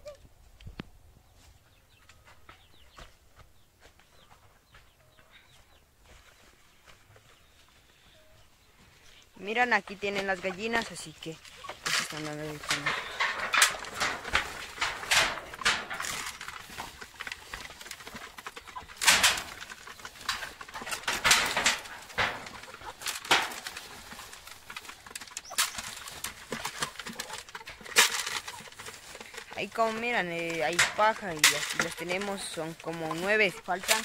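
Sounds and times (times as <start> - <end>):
chickens vocalising: 1.3 - 34.0
rustling: 8.9 - 34.0
hens pecking clicks: 9.9 - 34.0.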